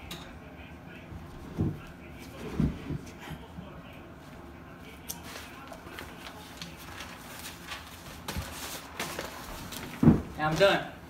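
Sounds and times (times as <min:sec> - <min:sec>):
notebook pages flipping: 0:05.1 - 0:10.0.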